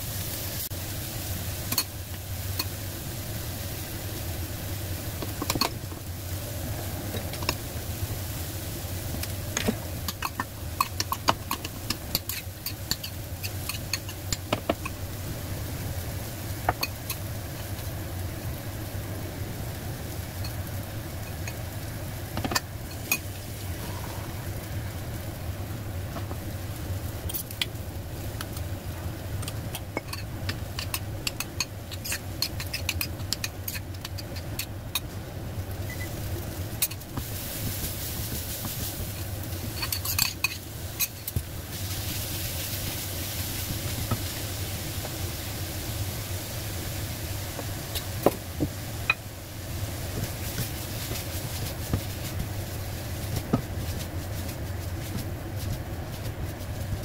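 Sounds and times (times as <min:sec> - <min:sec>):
food sizzling in a wok: 0:00.0 - 0:57.0
steady low hum: 0:00.0 - 0:57.0
utensils clinking on pan: 0:39.7 - 0:41.4.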